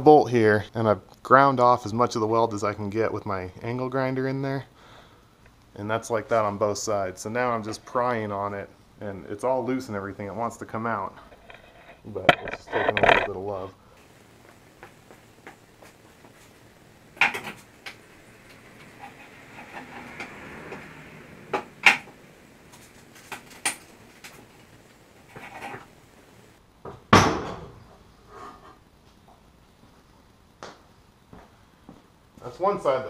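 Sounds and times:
pry bar scraping metal: 0:11.2 - 0:13.3, 0:17.2 - 0:20.9.

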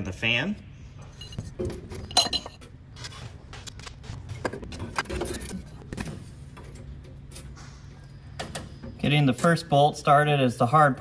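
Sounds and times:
metallic clinks and knocks: 0:01.0 - 0:02.8.

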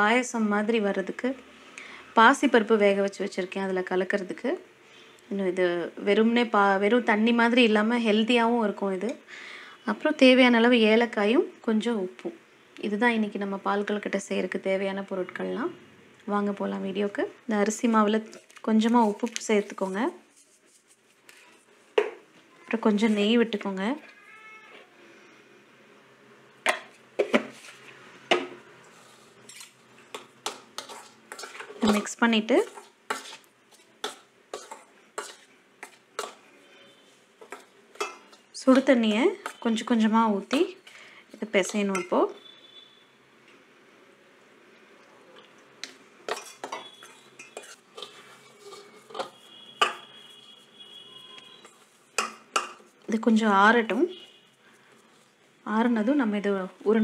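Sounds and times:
metal pot and spoon clinking: 0:37.4 - 0:39.6, 0:41.6 - 0:42.2, 0:45.8 - 0:50.1, 0:52.2 - 0:52.8.

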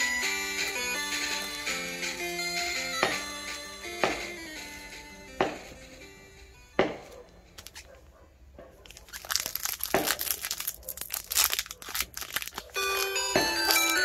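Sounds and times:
plastic wrapping crinkling and tearing: 0:08.8 - 0:14.0.

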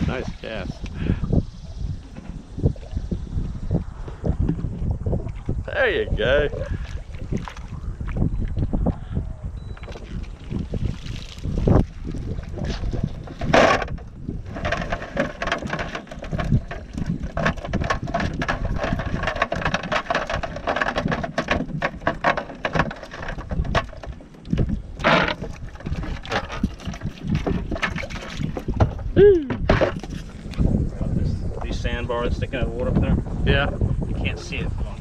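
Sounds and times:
boat deck noise: 0:00.0 - 0:35.0
wind on microphone: 0:00.0 - 0:35.0
cast net clicks and patters: 0:10.8 - 0:29.0.

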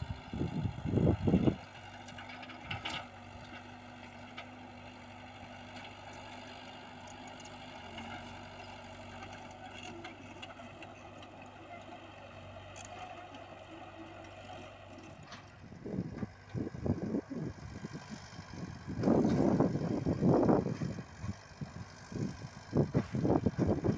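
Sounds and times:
excavator diesel engine running: 0:00.0 - 0:23.9
tracks moving over loose soil: 0:00.0 - 0:23.9
wind buffeting microphone: 0:00.1 - 0:01.6.

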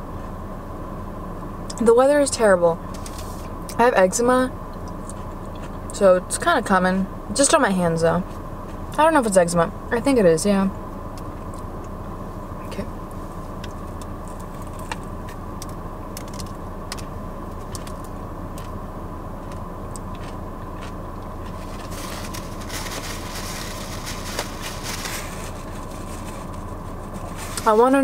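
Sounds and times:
low hum inside a car: 0:00.0 - 0:28.0
chewing and mouth clicks: 0:04.8 - 0:05.9, 0:13.6 - 0:18.7, 0:19.4 - 0:21.9
paper wrapper rustling: 0:21.5 - 0:27.8.

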